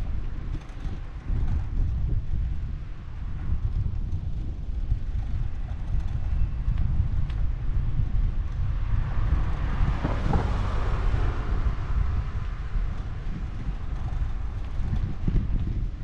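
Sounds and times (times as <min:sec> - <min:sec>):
wind rumbling on microphone: 0:00.0 - 0:16.0
car passing: 0:08.6 - 0:14.9.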